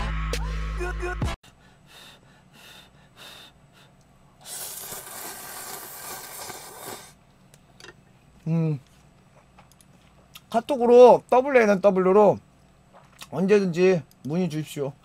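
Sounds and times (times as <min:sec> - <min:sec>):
person breathing: 0:01.4 - 0:05.2
person slurping noodles: 0:04.4 - 0:07.2.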